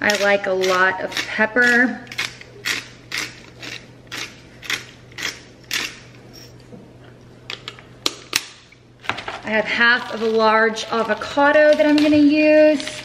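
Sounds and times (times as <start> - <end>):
pepper grinder crunching: 0.0 - 6.2, 9.9 - 13.0.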